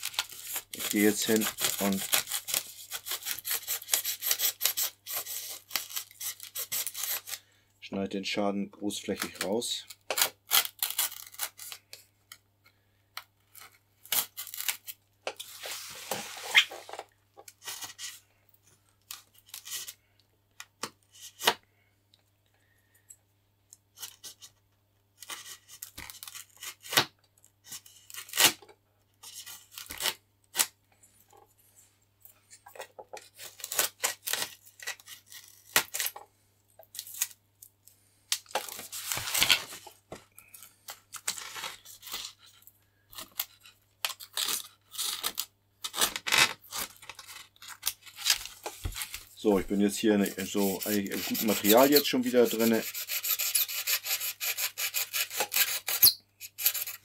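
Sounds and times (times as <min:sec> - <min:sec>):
blade scraping and tearing: 0:00.0 - 0:07.4, 0:09.3 - 0:12.0, 0:13.5 - 0:18.2, 0:25.2 - 0:27.0, 0:27.6 - 0:28.6, 0:33.2 - 0:36.2, 0:38.5 - 0:57.0.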